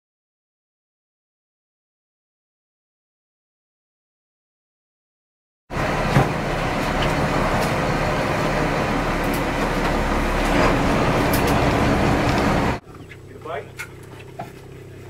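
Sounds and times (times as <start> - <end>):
boat engine running: 5.7 - 15.0.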